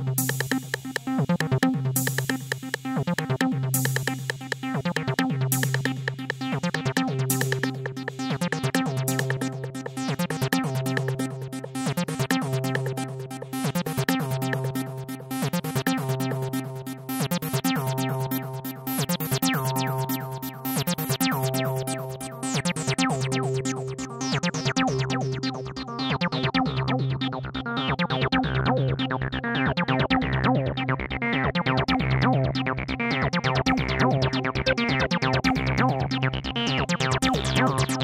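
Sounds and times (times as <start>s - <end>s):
electronic synth music: 0.1s - 26.0s.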